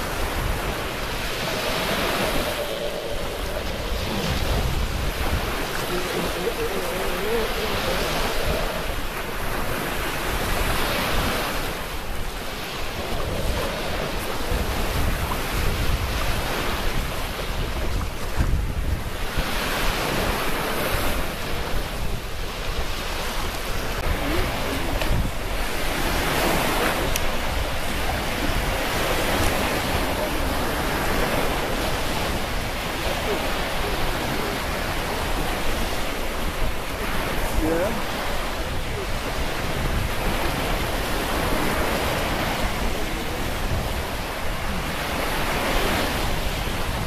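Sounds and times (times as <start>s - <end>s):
surf breaking on shore: 0.0s - 47.0s
wind buffeting microphone: 0.0s - 47.0s.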